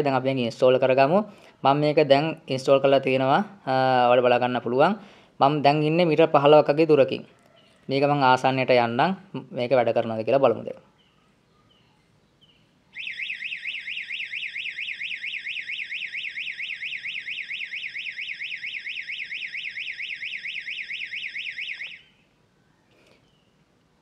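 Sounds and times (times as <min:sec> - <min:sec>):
electronic siren warbling: 0:13.0 - 0:22.2.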